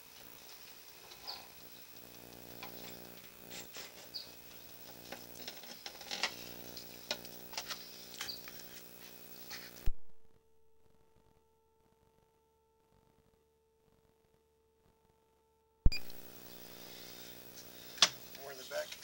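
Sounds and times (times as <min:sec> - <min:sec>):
electrical hum: 0:00.0 - 0:10.4, 0:15.9 - 0:19.0
cable clicks and scrapes in pipe: 0:00.2 - 0:09.9.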